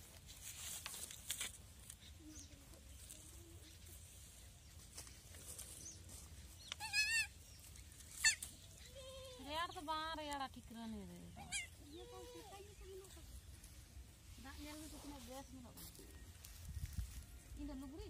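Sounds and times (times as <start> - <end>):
faint clicks and rustles: 0.0 - 17.8
goat kid bleating: 6.8 - 7.4, 11.3 - 12.6.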